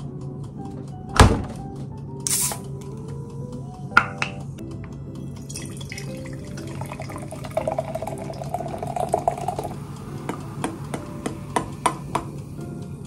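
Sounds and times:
can opening click: 0:02.2 - 0:02.7
soda pouring and fizzing: 0:05.2 - 0:12.6.

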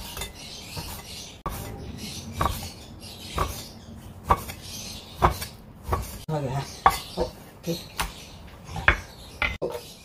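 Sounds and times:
cleaver slicing meat: 0:00.0 - 0:07.2.

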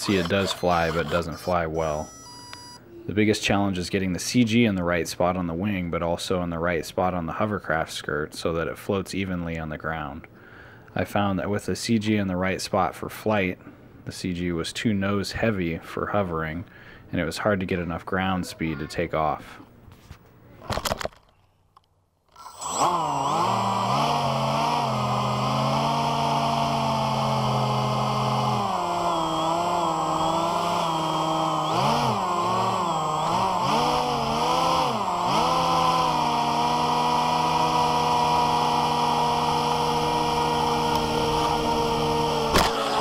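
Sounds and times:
electric motors whining: 0:00.0 - 0:02.9, 0:22.3 - 0:43.0.

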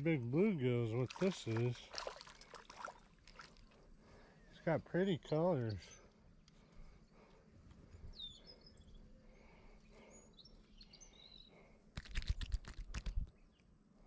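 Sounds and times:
faint bird chirps: 0:04.2 - 0:11.8.

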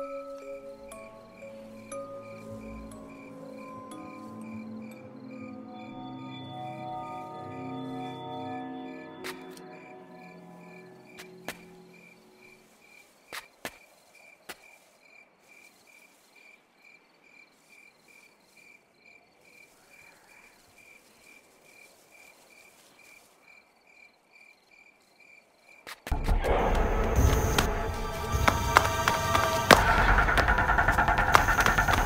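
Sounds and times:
cricket chirping: 0:00.0 - 0:32.0
loud music: 0:26.2 - 0:32.0.

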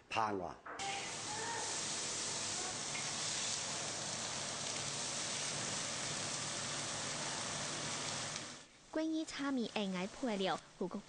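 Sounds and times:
noodles sizzling in a wok: 0:00.8 - 0:11.0.

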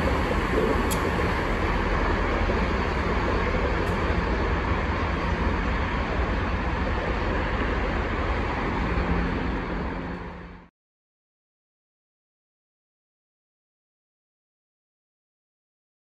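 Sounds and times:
locomotive low rumble: 0:00.0 - 0:10.7.

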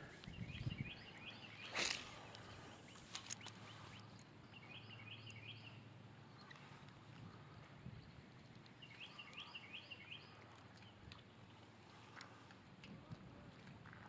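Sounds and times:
bird chirping: 0:00.3 - 0:02.2, 0:02.8 - 0:06.7, 0:08.8 - 0:11.0
fishing rod cast whoosh: 0:01.6 - 0:02.3.

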